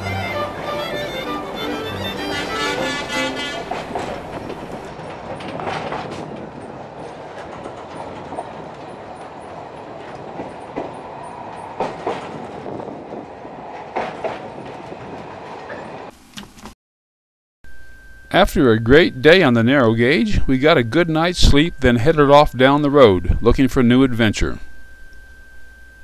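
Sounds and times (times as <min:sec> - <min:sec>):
fiddle music: 0:00.0 - 0:04.9
train rumbling: 0:00.0 - 0:16.1
wheels clacking over rail joints: 0:00.0 - 0:16.1.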